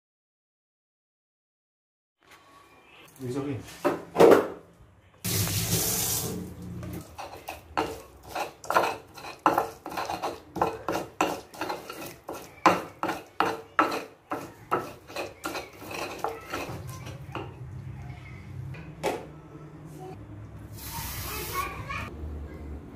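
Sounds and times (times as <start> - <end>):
tap water running onto hand: 5.3 - 6.5
pestle grinding in stone mortar: 7.0 - 17.6.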